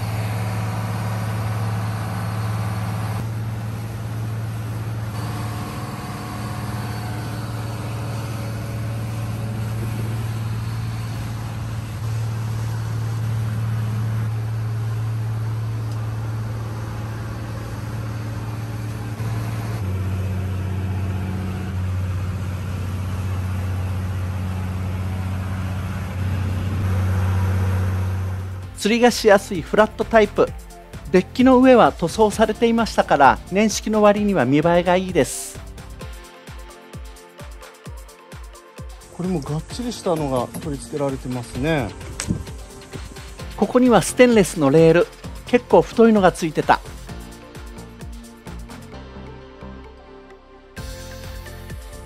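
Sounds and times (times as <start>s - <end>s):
inboard diesel engine drone: 0.0s - 36.3s, 38.8s - 52.0s.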